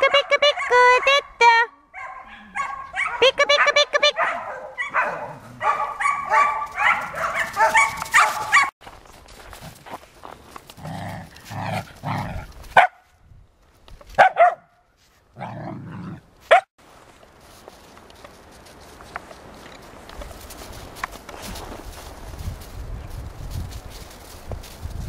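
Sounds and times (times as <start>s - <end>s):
puppies barking and yipping: 2.0s - 8.8s.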